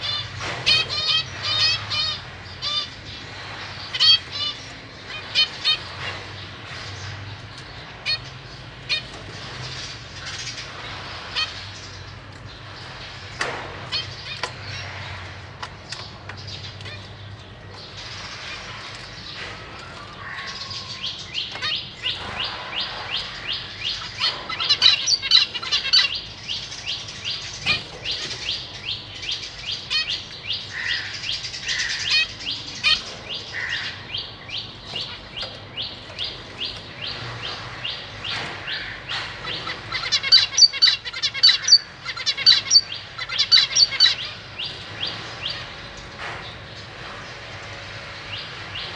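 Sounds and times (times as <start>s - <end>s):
finches chirping: 0.0s - 6.9s, 20.2s - 46.1s.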